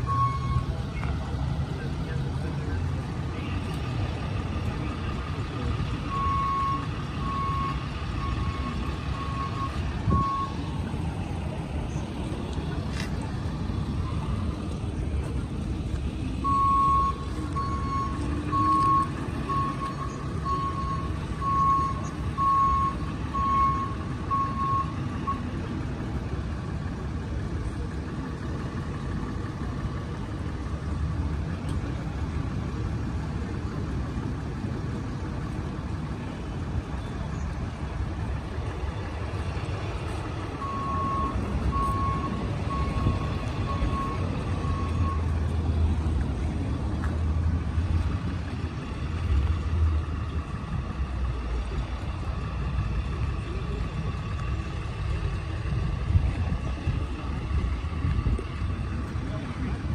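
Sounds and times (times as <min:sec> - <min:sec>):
truck backup alarm beeping: 0:00.0 - 0:11.7, 0:13.3 - 0:25.8, 0:38.4 - 0:46.2
low engine rumble: 0:00.0 - 0:59.9.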